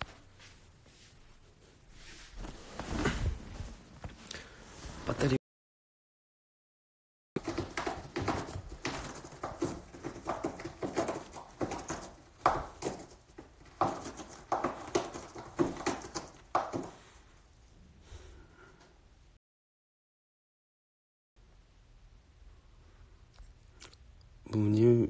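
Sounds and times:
cat scratching carpet: 7.4 - 17.2.

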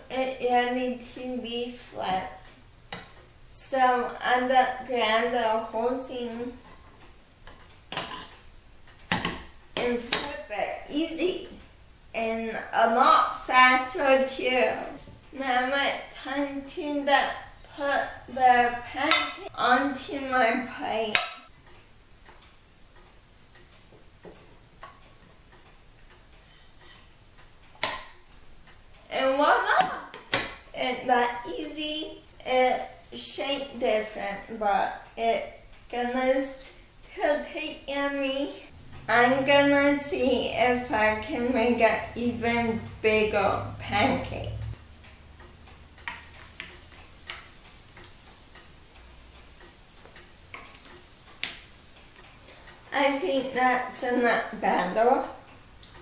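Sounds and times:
utensil clicking against pan: 6.2 - 10.5, 17.2 - 22.6, 23.5 - 29.0, 39.4 - 53.6
faint light ticks and clicks: 44.5 - 53.0
batter sizzling in pan: 46.0 - 54.5.

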